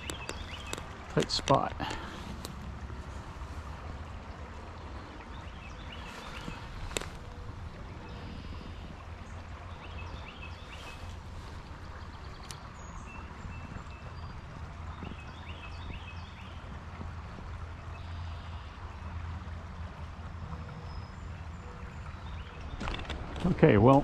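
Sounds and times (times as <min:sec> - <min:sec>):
songbird chirping: 0:00.0 - 0:03.6, 0:04.4 - 0:16.7
low rumble with hiss: 0:00.0 - 0:24.0.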